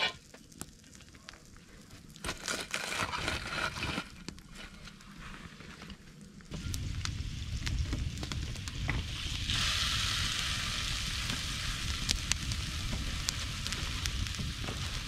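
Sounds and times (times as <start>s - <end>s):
campfire crackling and popping: 0.0s - 5.2s, 5.9s - 15.0s
fish sizzling on griddle: 6.5s - 15.0s.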